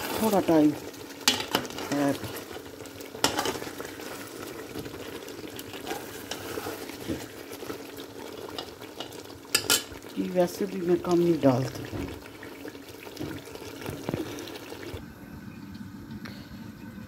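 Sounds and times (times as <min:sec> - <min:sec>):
curry sizzling and bubbling: 0:00.0 - 0:15.1.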